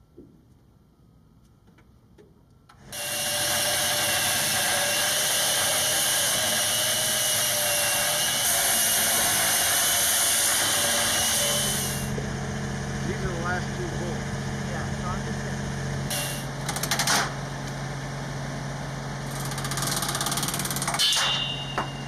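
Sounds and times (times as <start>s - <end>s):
angle grinder cutting metal: 2.9s - 12.2s, 16.1s - 16.5s.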